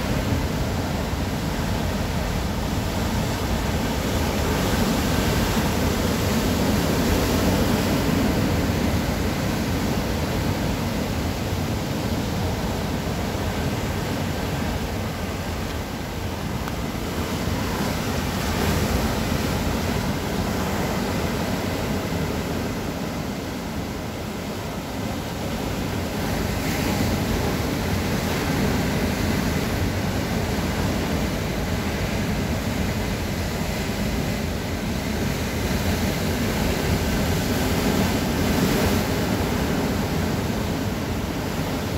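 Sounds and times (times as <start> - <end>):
sea surf breaking over rocks: 0.0 - 41.9.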